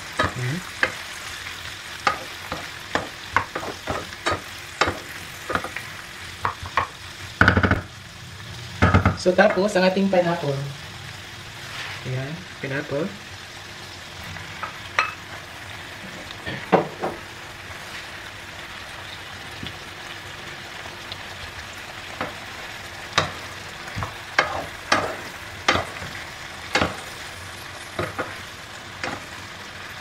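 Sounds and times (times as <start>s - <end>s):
vegetables sizzling in a frying pan: 0.0s - 30.0s
wooden spoon knocking and scraping pan: 2.0s - 5.8s, 23.1s - 27.2s, 27.9s - 28.4s.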